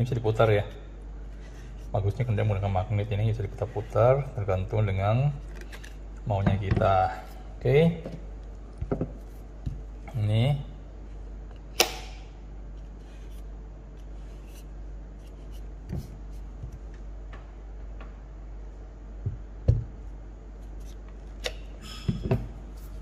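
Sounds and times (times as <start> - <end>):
sharp plastic click: 11.8 - 12.2.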